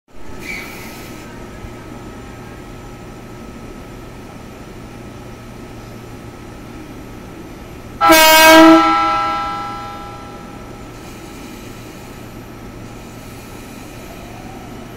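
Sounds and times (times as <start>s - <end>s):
electric train hum: 0.1s - 14.9s
train horn blasting: 8.0s - 10.7s.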